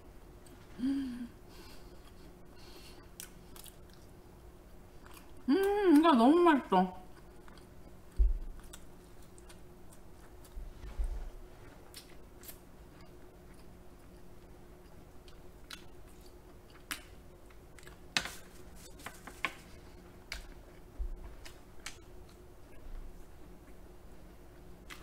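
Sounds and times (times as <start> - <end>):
faint steady hum: 0.0 - 25.0
chewing and mouth smacks: 3.0 - 4.1, 4.9 - 5.4, 7.1 - 10.6, 11.9 - 18.2.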